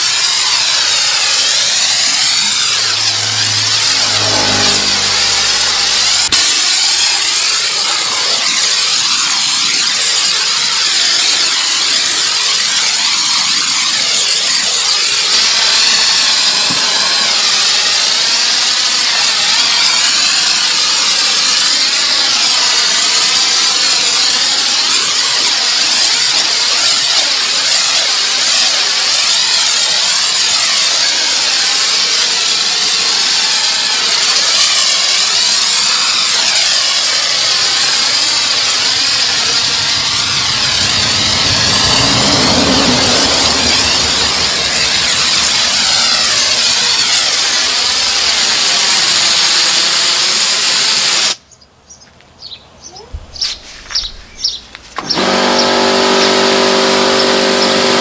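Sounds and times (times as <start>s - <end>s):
pressure washer spraying water: 0.0s - 51.4s, 54.4s - 58.0s
low hum: 0.5s - 7.5s, 37.0s - 47.0s.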